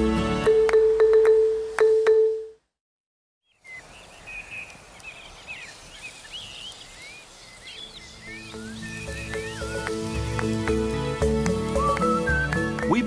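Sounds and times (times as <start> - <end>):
birds chirping: 3.4 - 13.0
faint outdoor background noise: 3.4 - 13.0
music with plucked notes: 9.0 - 13.0.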